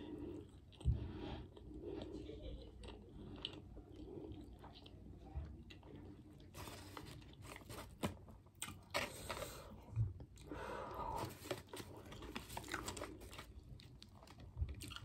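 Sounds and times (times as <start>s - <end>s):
paper rustling: 6.6s - 8.2s
wet chewing: 11.7s - 15.0s.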